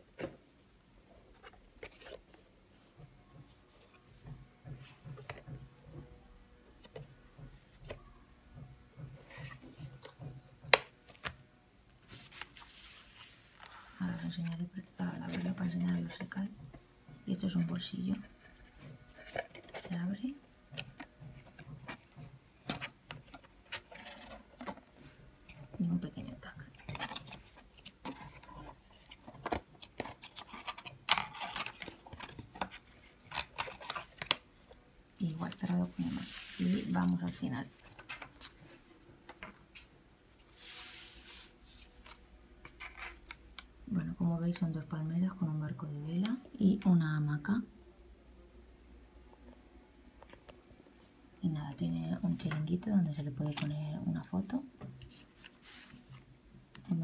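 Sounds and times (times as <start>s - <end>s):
paper and card rustling: 1.4s - 2.4s, 12.0s - 16.3s, 17.5s - 20.1s, 20.7s - 43.6s, 53.2s - 56.9s
paper rustling and tapping: 6.8s - 11.4s.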